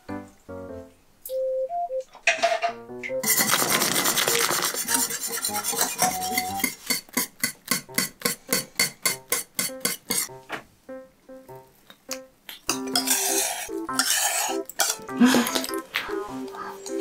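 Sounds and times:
whisk scraping saucepan: 3.2s - 10.3s, 12.9s - 15.1s.

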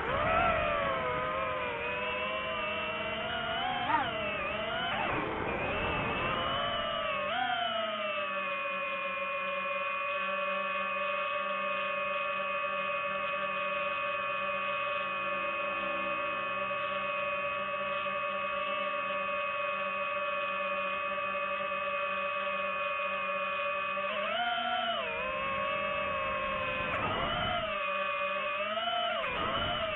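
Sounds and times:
drone propellers whining: 0.0s - 29.9s.

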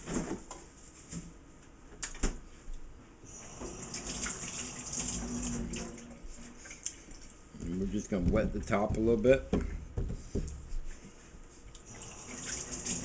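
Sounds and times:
tap running: 7.6s - 10.7s
sharp knocks: 8.1s - 10.6s.

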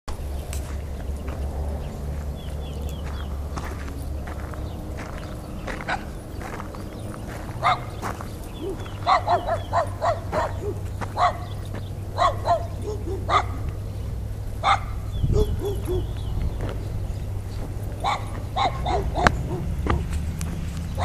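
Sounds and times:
steady low hum: 0.1s - 21.0s
dog barking: 7.6s - 8.0s, 8.6s - 11.6s, 12.2s - 13.7s, 14.6s - 16.2s, 18.0s - 20.1s
dog yelping: 7.6s - 8.0s, 8.6s - 11.6s, 12.2s - 13.7s, 14.6s - 16.2s, 18.0s - 20.1s.

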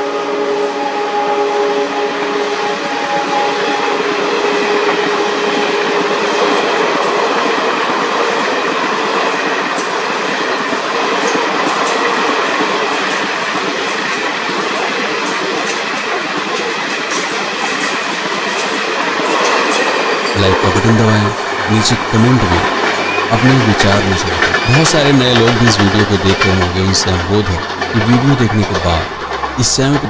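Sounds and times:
locomotive horn: 0.0s - 8.4s, 19.2s - 30.0s
train wheels rushing on rail: 0.0s - 30.0s
wheels clicking over rail joints: 4.1s - 30.0s.

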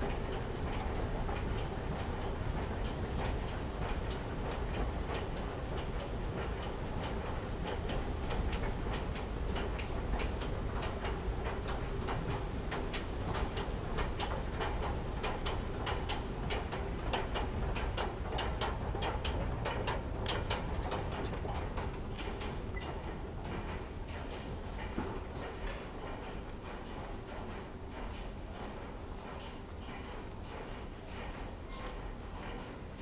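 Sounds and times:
sharp irregular clicks: 7.7s - 24.4s.

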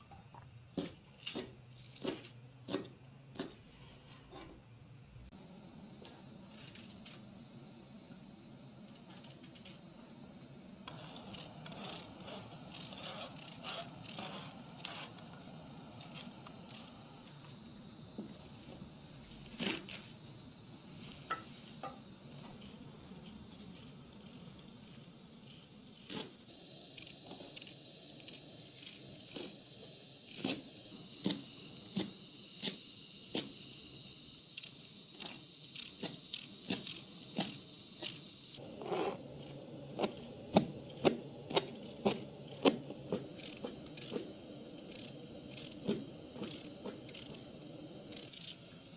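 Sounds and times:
faint hiss: 3.5s - 48.9s.

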